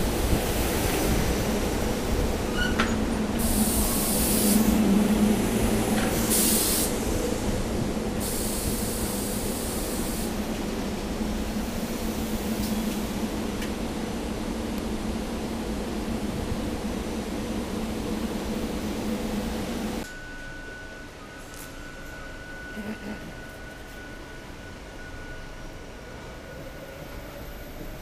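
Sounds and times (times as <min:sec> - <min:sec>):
electric railcar humming: 0:00.0 - 0:28.0
air hissing: 0:03.4 - 0:04.8, 0:06.0 - 0:07.3, 0:08.2 - 0:10.4.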